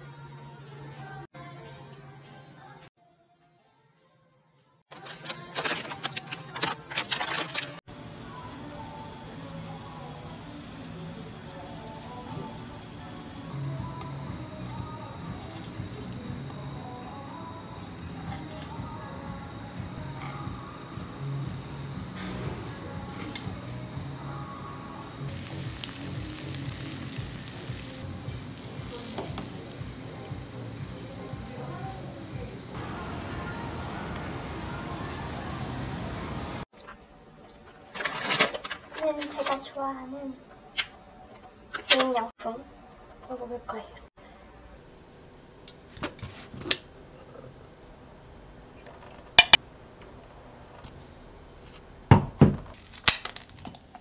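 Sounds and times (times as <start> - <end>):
background music: 0.0 - 36.6
fried rice sizzling in a pan: 7.9 - 21.0, 25.2 - 32.8.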